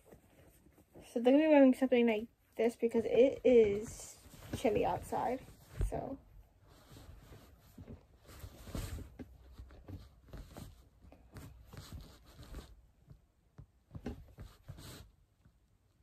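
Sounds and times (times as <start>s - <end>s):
fabric rustling: 2.6s - 12.9s, 13.9s - 15.2s.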